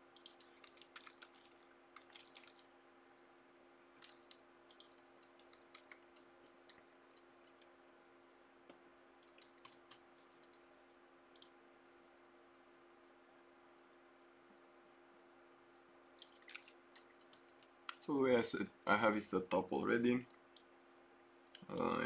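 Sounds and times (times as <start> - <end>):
faint low hum: 0.0 - 22.0
mouse and keyboard clicks: 0.2 - 2.7, 4.0 - 7.7, 8.7 - 10.6.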